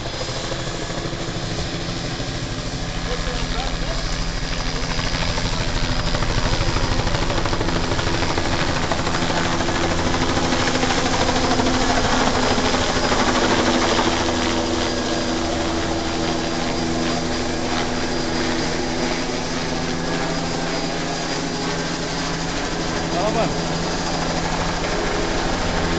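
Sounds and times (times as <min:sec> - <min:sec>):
helicopter rotor drone: 0:00.0 - 0:25.9.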